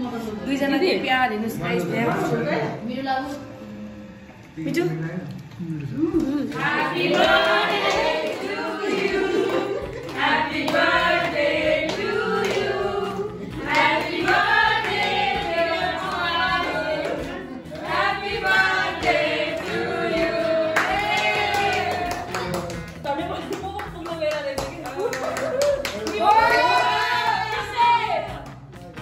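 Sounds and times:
group singing birthday song: 6.1 - 24.0, 26.1 - 28.6
hand clapping: 6.2 - 29.0.

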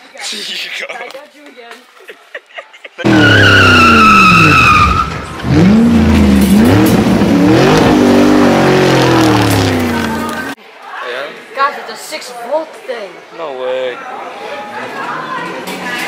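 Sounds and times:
tyre squeal: 3.1 - 5.4
racing engine revving: 3.1 - 10.6.

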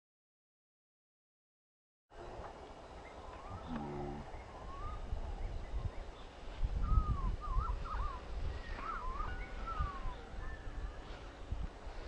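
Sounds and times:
wind rumble on microphone: 3.4 - 12.0
bird singing whistles: 4.4 - 5.1, 6.8 - 11.0.

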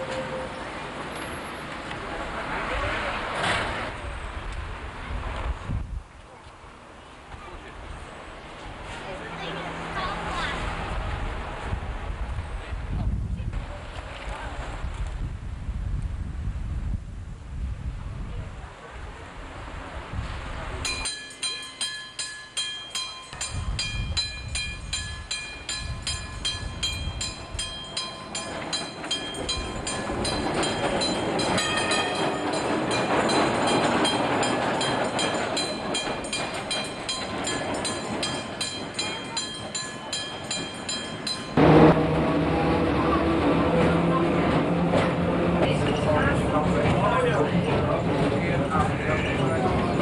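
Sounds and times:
tram heard from inside: 0.0 - 4.4, 19.7 - 50.0
tram running noise: 0.0 - 14.8, 18.7 - 50.0
rapid repeated bell ringing: 20.9 - 41.6.

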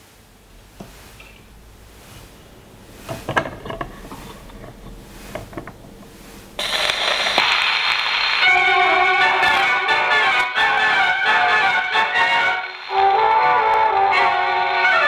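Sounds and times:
record surface hiss and crackle: 0.0 - 15.0
gramophone music: 6.6 - 15.0.

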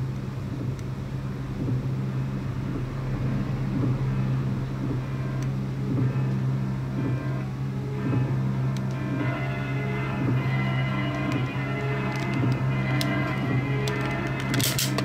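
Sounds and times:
low droning hum: 0.0 - 15.0
vinyl surface noise and clicks: 11.0 - 15.0.

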